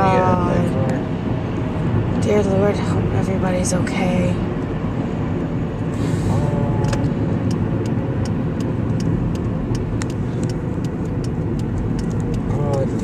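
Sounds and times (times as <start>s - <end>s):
car road and engine rumble: 0.0s - 13.0s
faint regular ticks: 6.8s - 13.0s.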